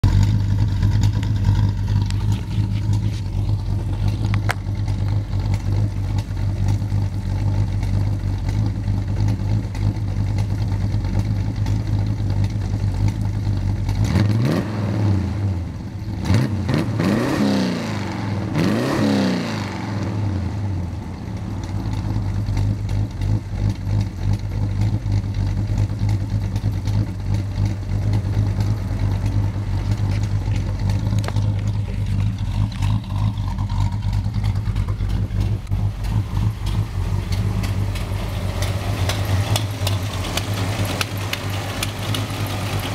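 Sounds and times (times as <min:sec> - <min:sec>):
car engine idling: 0:00.0 - 0:17.3, 0:17.9 - 0:42.9
engine revving: 0:13.9 - 0:42.9.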